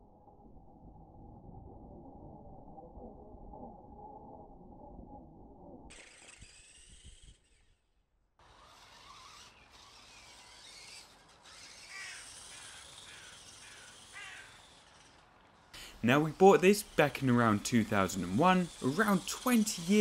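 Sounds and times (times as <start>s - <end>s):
electric motor whine: 5.9s - 20.0s
crows cawing: 11.8s - 14.8s.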